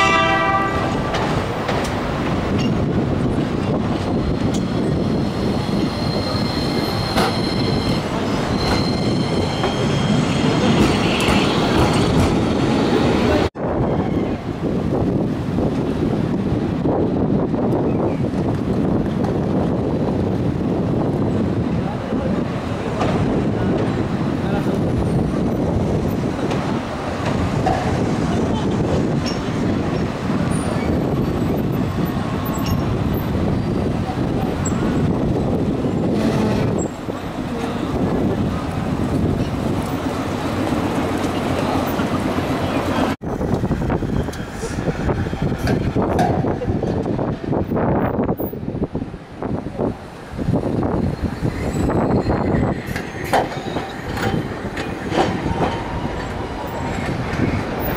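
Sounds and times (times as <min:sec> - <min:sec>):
city traffic noise: 0:00.0 - 0:57.9
tram wheels rolling on rails: 0:00.0 - 0:57.9
clacks over rail joints: 0:00.8 - 0:04.7, 0:10.6 - 0:12.5, 0:26.4 - 0:29.6, 0:45.5 - 0:47.5, 0:52.8 - 0:57.9.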